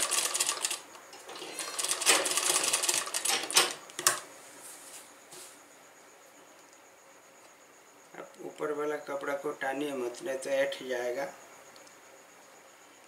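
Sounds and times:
sewing machine stitching: 0.0s - 3.7s.

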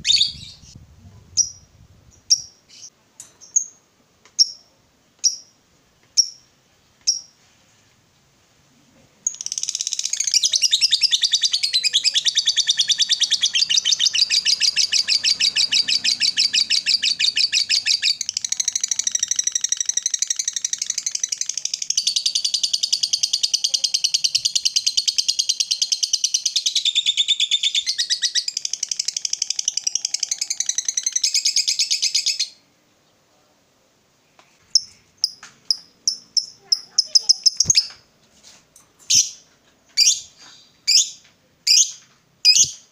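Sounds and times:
bird chirps: 0.0s - 3.8s, 9.3s - 33.2s, 34.8s - 38.1s, 40.0s - 42.9s
rapid bird chattering trill: 34.8s - 37.9s.

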